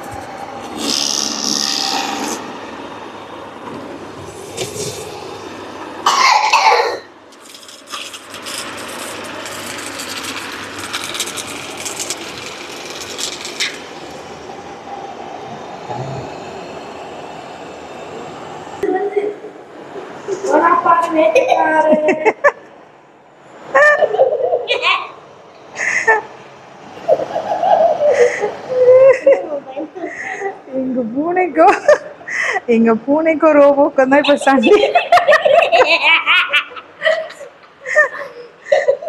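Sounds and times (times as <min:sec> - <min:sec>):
robot vacuum running: 0:00.0 - 0:05.7, 0:07.5 - 0:18.6.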